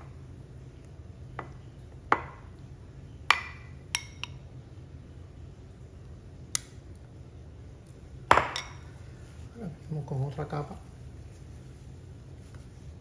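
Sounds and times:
spoon knocking on glassware: 8.3s - 8.8s.

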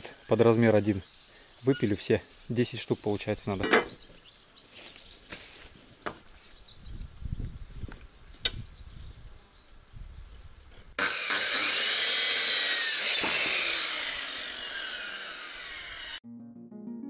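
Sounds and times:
electric saw cutting wood: 11.0s - 16.2s.

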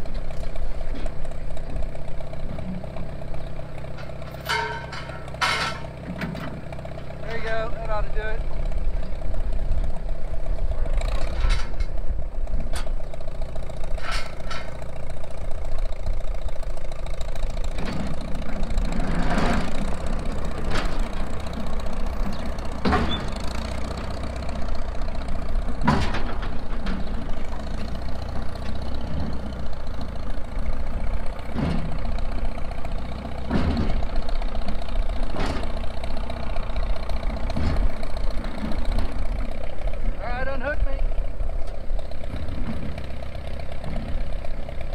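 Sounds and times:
engine running steadily: 0.0s - 44.9s
sharp metal clank: 4.0s - 6.6s.

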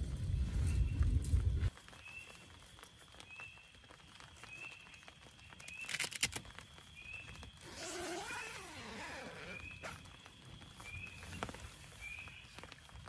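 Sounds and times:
tent poles clicking: 4.9s - 6.6s, 7.6s - 10.1s
pole scraping tent fabric: 7.6s - 10.0s
nylon rustling: 7.6s - 12.9s.

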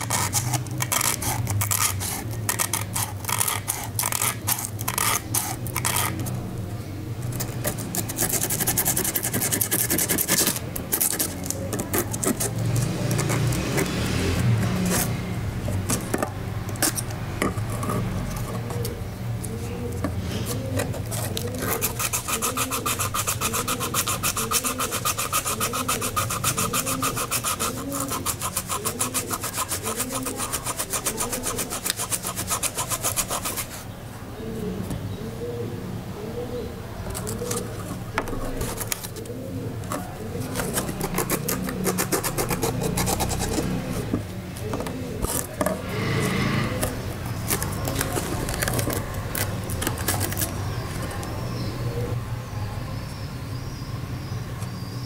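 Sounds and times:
sandpaper scraping steel blades: 0.0s - 6.3s, 7.4s - 15.2s, 20.5s - 33.8s, 40.4s - 44.1s.

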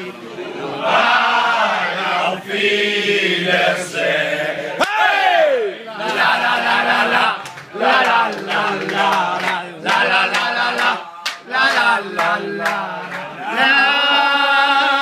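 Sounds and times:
men chanting in unison: 0.6s - 15.0s
hand claps: 7.4s - 13.3s.

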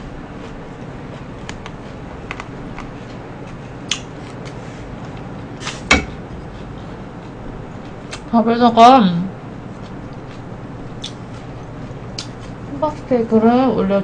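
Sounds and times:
low background hum: 0.0s - 14.0s
chopsticks clicking on trays: 3.9s - 5.3s, 12.1s - 12.6s.

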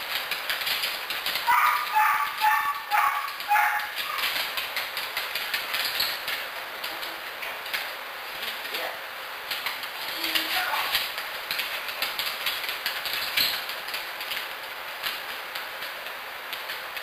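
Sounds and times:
dog barking: 1.5s - 4.3s.

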